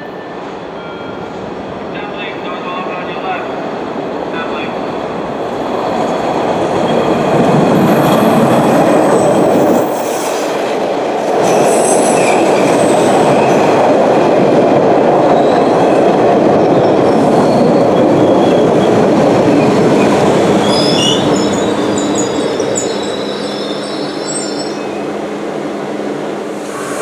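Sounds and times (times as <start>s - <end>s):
train wheels rumbling on rail: 0.0s - 27.0s
high-pitched brake squealing: 20.6s - 25.0s, 26.6s - 27.0s.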